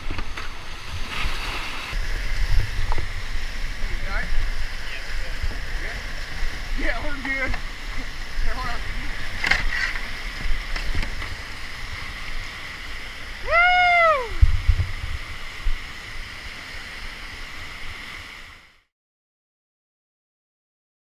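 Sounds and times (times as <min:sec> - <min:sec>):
wind and handling thumps: 0:00.0 - 0:12.1, 0:14.4 - 0:15.8
rushing whitewater: 0:00.0 - 0:18.8.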